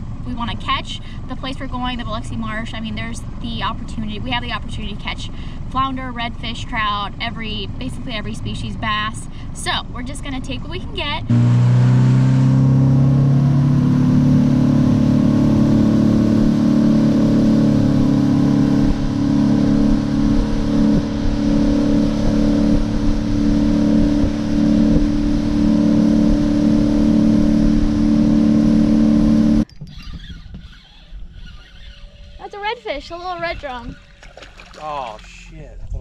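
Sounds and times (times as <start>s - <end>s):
outboard motor running: 0.0s - 35.4s.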